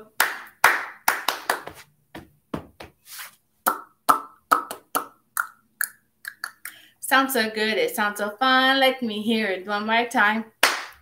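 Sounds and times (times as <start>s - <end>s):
woman clapping hands: 0.2s - 1.8s, 10.6s - 11.0s
tongue clicks and mouth pops: 3.7s - 6.8s.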